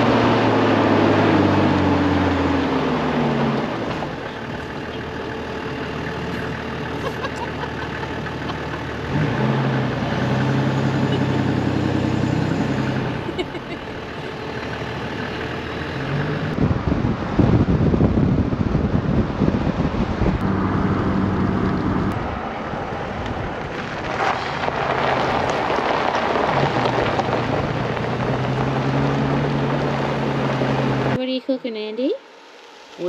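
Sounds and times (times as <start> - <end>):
vehicle engine running: 0.0 - 33.0
wind buffeting microphone: 16.4 - 31.2.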